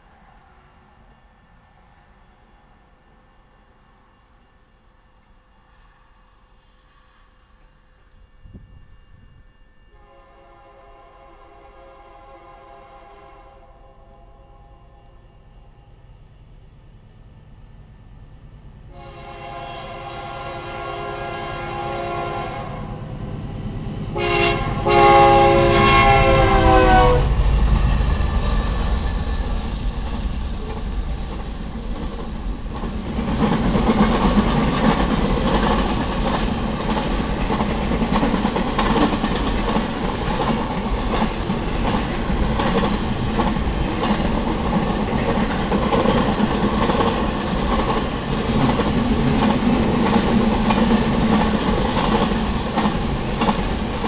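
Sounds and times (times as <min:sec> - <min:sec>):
railcars rumbling by: 0:00.0 - 0:54.0
locomotive air horn blasts: 0:09.9 - 0:15.4, 0:18.9 - 0:23.0, 0:24.1 - 0:27.3.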